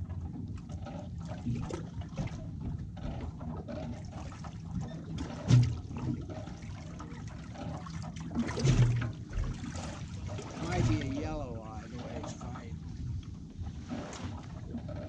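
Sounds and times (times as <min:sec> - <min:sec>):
water lapping against a boat hull: 0:00.0 - 0:15.0.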